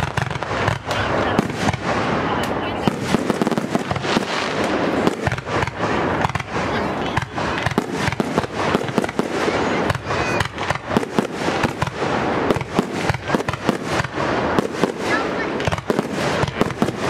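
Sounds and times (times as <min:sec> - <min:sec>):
fireworks bursting: 0:00.0 - 0:17.0
fireworks crackling: 0:00.0 - 0:17.0.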